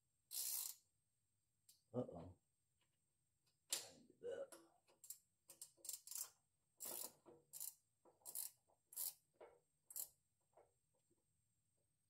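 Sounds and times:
socket wrench ratcheting: 0.3s - 0.8s, 5.0s - 9.2s, 9.9s - 10.2s.

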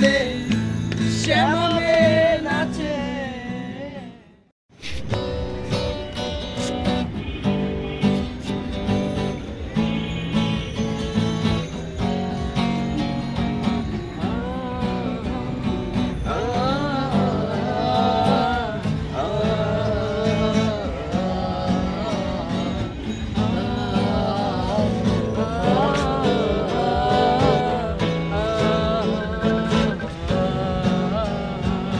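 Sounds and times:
man singing: 0.0s - 4.4s, 13.8s - 31.9s
acoustic guitar strumming: 0.0s - 31.9s.

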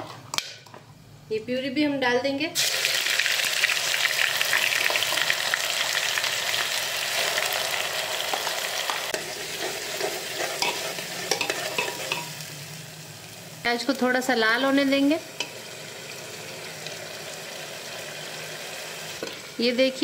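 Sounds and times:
onion sizzling in hot oil: 2.6s - 20.0s
spoon scraping a pot: 9.1s - 12.4s.

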